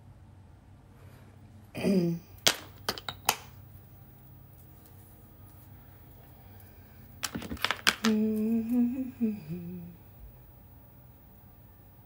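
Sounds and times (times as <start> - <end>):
woman humming: 1.8 - 2.4, 8.0 - 10.4.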